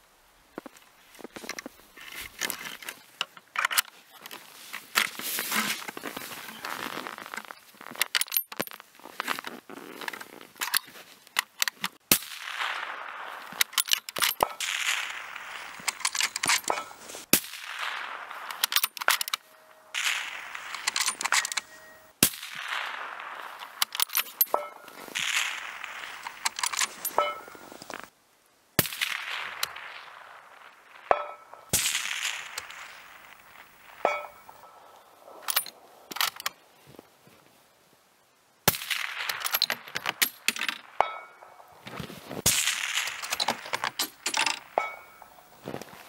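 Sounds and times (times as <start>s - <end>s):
rifle shots cracking: 12.0s - 28.1s, 28.8s - 36.5s, 38.7s - 41.1s, 42.4s - 45.4s.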